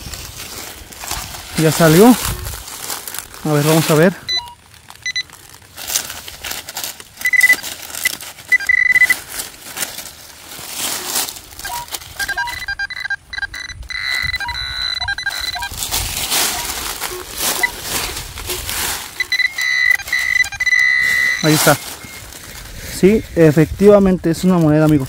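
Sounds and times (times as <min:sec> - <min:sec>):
leaves and soil crunching: 0:00.0 - 0:12.9, 0:13.6 - 0:25.0
metal detector beeping: 0:03.7 - 0:05.4, 0:07.2 - 0:09.3, 0:11.5 - 0:23.6.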